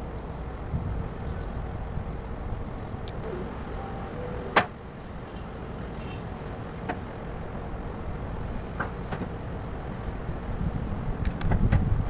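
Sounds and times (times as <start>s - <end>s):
steady low rumble: 2.9s - 8.0s.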